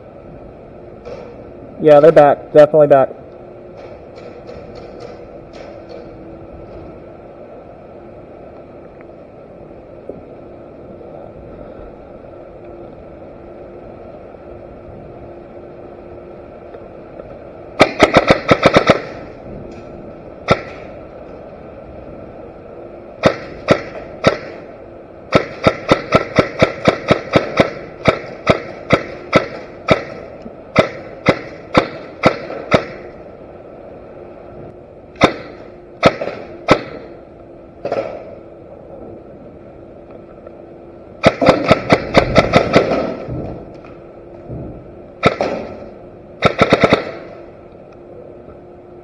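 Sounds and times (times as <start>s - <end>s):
airsoft gun shots: 17.8s - 19.3s, 20.4s - 20.9s, 23.2s - 24.6s, 25.3s - 33.1s, 35.2s - 37.1s, 37.8s - 38.4s, 41.2s - 43.4s, 45.2s - 47.4s.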